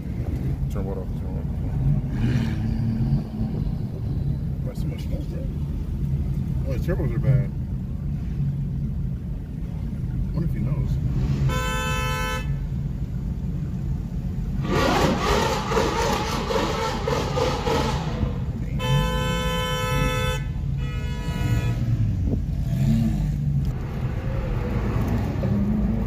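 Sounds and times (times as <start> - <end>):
engines rumbling in traffic: 0.0 - 26.0
car horn honking: 11.3 - 12.8, 16.8 - 22.3
sports car burnout: 14.6 - 20.3.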